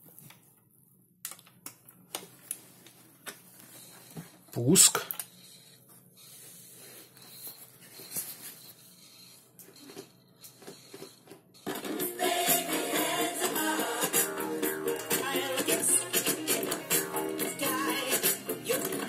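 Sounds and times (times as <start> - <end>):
music with singing from a speaker: 11.7 - 19.0.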